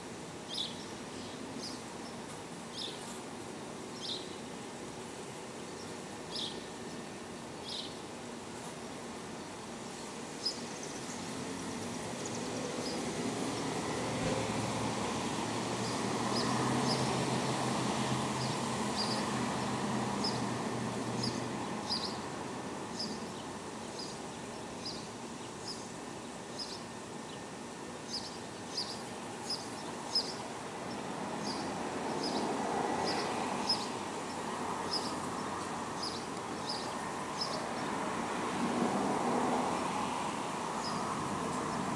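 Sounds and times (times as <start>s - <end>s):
steady noisy hush: 0.0s - 41.9s.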